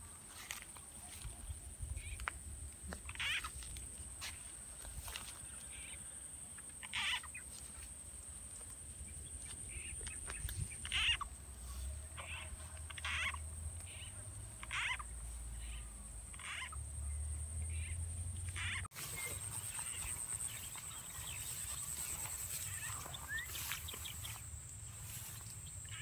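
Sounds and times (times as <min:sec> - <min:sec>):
frog-like croaks: 0:02.9 - 0:03.6, 0:09.7 - 0:11.4, 0:12.1 - 0:17.0, 0:17.6 - 0:18.9.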